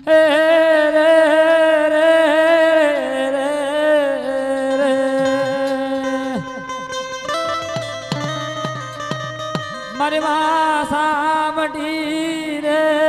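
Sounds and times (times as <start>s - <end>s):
man singing a long note: 0.0s - 6.8s, 9.9s - 13.0s.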